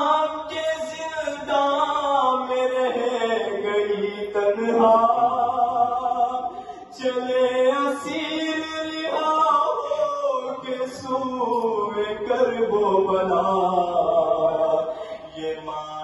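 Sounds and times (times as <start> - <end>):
man chanting a lament: 0.0 - 16.0
man breathing: 6.5 - 7.0, 14.9 - 15.3.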